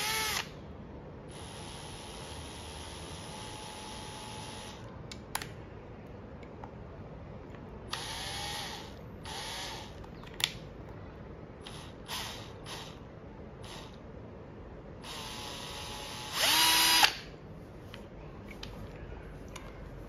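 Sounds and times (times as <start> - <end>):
cordless drill motor whining: 0.0 - 0.5, 1.3 - 4.8, 7.9 - 10.0, 11.6 - 13.0, 13.6 - 14.0, 15.0 - 17.3.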